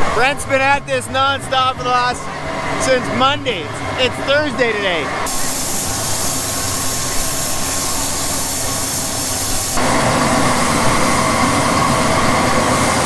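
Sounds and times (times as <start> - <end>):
blower whine: 0.0 - 13.0
grain vacuum rushing: 5.3 - 13.0.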